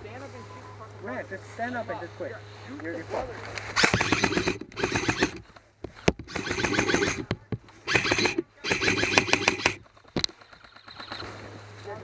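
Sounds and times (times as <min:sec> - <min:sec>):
airsoft rifle automatic bursts: 0:03.6 - 0:11.2.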